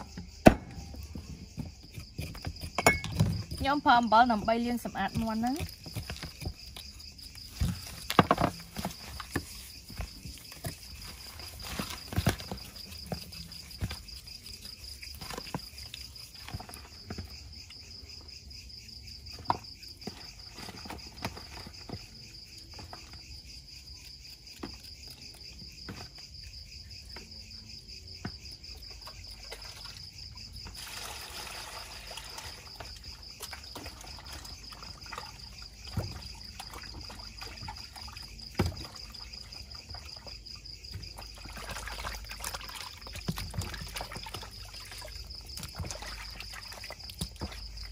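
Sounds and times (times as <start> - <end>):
clicks and knocks in plastic basin: 0.0 - 3.7, 5.1 - 14.1, 32.6 - 40.1
crickets chirping: 0.0 - 47.9.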